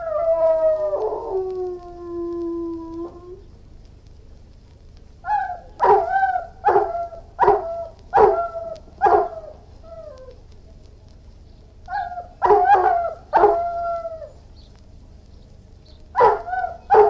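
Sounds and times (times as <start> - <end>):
dog howling: 0.0 - 3.5, 5.2 - 10.4, 11.9 - 14.4, 16.2 - 17.0
dog barking: 5.3 - 9.6, 11.9 - 13.6, 16.2 - 17.0.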